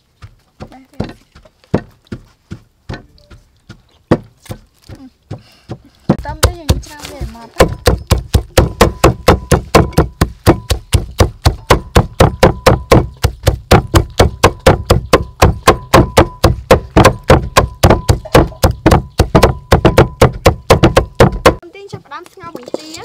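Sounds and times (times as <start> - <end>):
cleaver chopping on wooden block: 1.0 - 2.0, 5.3 - 21.6.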